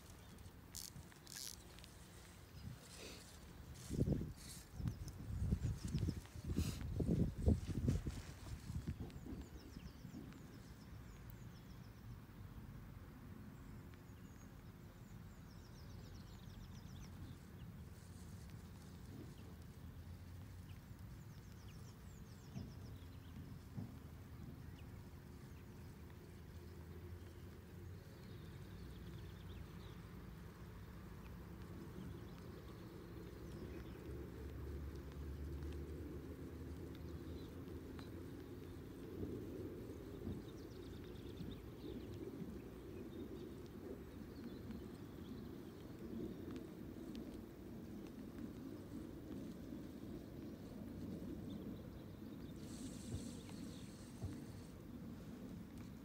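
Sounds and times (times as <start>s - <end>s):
small birds chirping: 0.0s - 12.6s, 13.6s - 56.0s
wind buffeting microphone: 2.5s - 10.5s.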